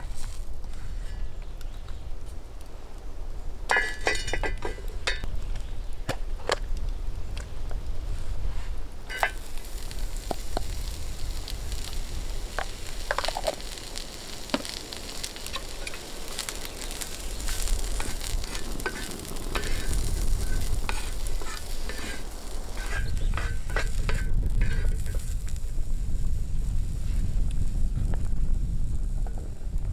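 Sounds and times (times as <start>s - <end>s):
mushrooms and onion sizzling: 6.9s - 29.9s
wooden spatula scraping pan: 15.5s - 25.2s.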